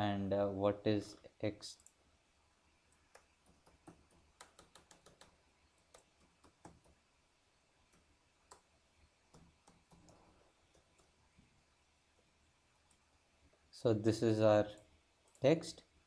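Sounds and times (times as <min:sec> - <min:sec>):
computer keyboard keystrokes: 0:03.0 - 0:07.0.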